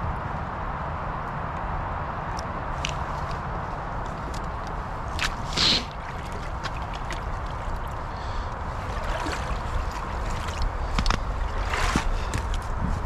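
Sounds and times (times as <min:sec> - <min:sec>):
gurgling water: 0:02.8 - 0:12.9
water splash: 0:05.1 - 0:12.3.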